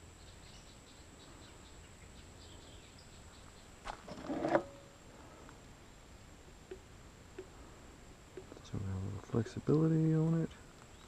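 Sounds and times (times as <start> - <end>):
faint bird chirps: 0.0 - 3.8, 10.4 - 11.0.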